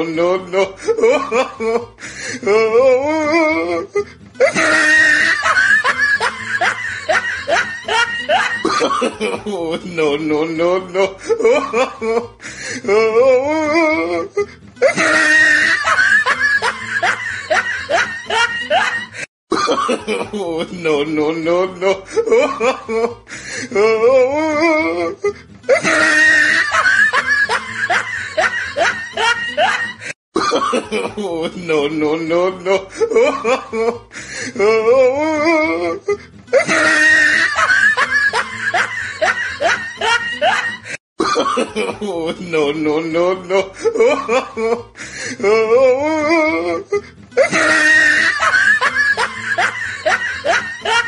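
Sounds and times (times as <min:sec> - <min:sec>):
person laughing: 0:00.2 - 0:10.2, 0:10.9 - 0:21.0, 0:21.8 - 0:31.8, 0:32.7 - 0:42.7, 0:43.5 - 0:51.0
music: 0:00.2 - 0:19.2, 0:20.1 - 0:30.1, 0:31.0 - 0:41.0, 0:41.8 - 0:51.0
wavering voice: 0:02.4 - 0:04.2, 0:12.8 - 0:15.2, 0:23.7 - 0:26.0, 0:45.4 - 0:47.7.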